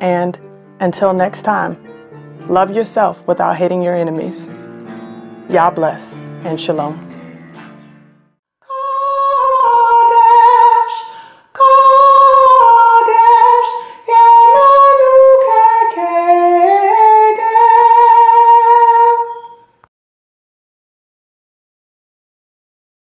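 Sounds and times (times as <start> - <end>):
woman singing unaccompanied: 8.6 - 19.6.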